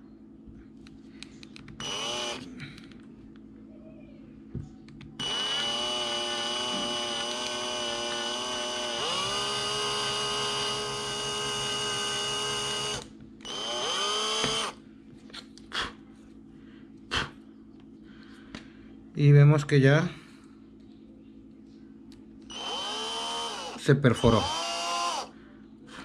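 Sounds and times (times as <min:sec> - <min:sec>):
electric drill boring a hole: 0:01.8 - 0:02.5, 0:05.2 - 0:14.8, 0:22.5 - 0:25.3.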